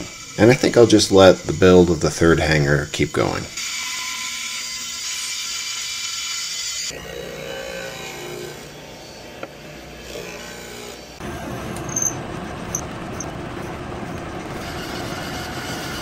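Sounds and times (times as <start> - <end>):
disc sander humming: 11.1 - 16.0.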